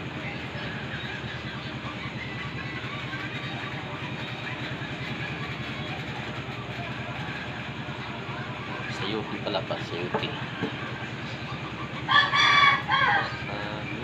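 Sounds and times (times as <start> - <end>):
small engine idling: 0.0 - 14.0.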